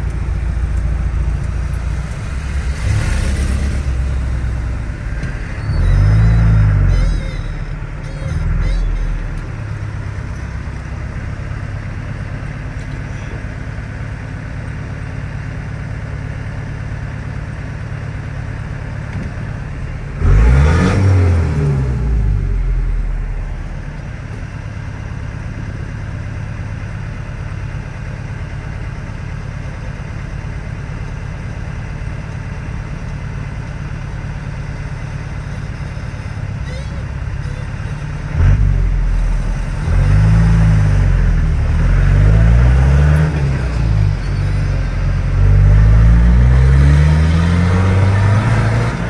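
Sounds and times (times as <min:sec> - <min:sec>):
pickup engine idling and revving: 0:00.0 - 0:49.0.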